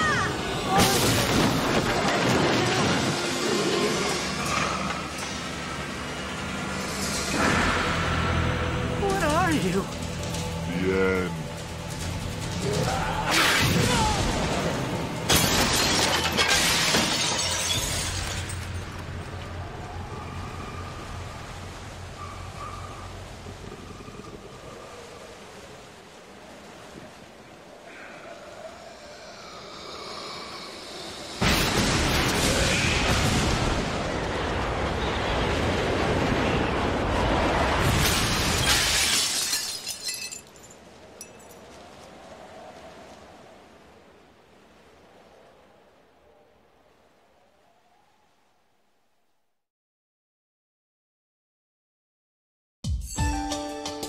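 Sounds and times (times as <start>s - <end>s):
crash of shattering debris: 11.5s - 19.0s, 31.4s - 41.5s.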